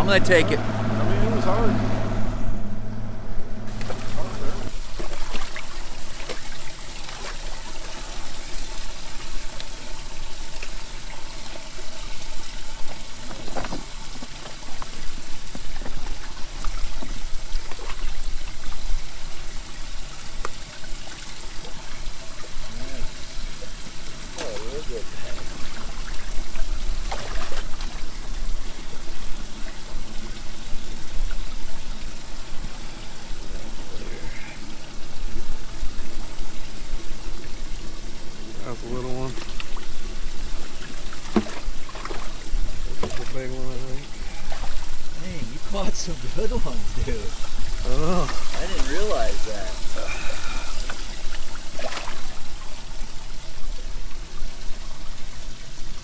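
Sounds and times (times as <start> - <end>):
steady low rumble: 0.0 - 4.8
water trickling and splashing: 3.7 - 56.0.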